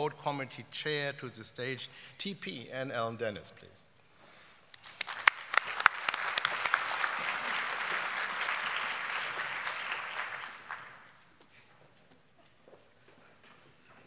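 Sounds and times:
audience applause: 4.8 - 11.2.

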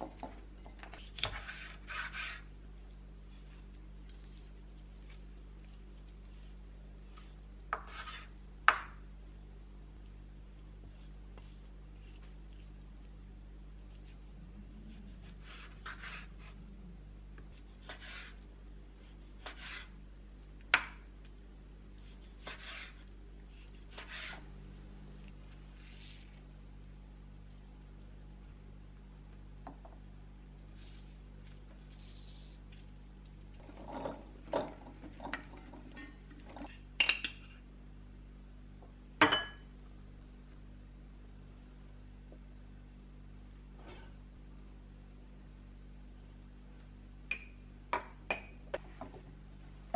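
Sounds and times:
low steady hum: 0.0 - 49.9
knife slicing raw meat: 22.0 - 24.4.

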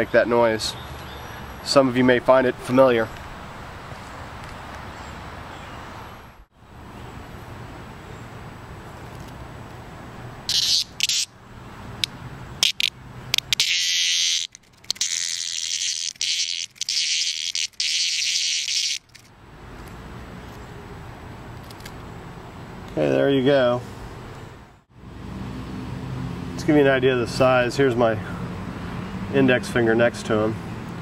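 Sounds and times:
cicada buzzing: 10.4 - 19.3.

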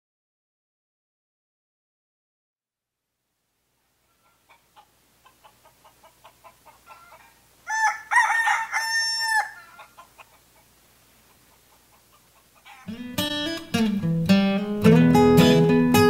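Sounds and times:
rooster clucking: 4.0 - 13.2
rooster crowing: 4.1 - 10.4, 12.0 - 13.0.

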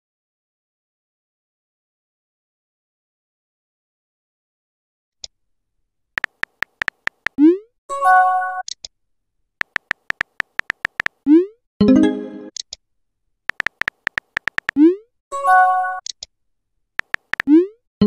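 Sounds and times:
keyboard tap clicks: 6.2 - 7.4, 9.6 - 11.2, 13.5 - 14.8, 17.0 - 17.5.

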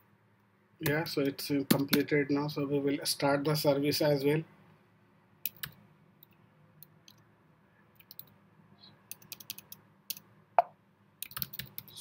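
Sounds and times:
computer keyboard keystrokes: 5.4 - 6.4, 8.0 - 8.3, 9.1 - 10.2, 11.2 - 12.0.

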